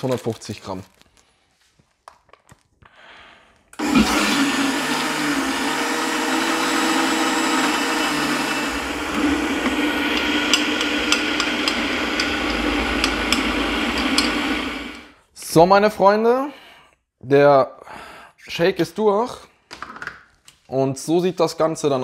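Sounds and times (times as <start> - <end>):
blender motor running: 3.8 - 15.2.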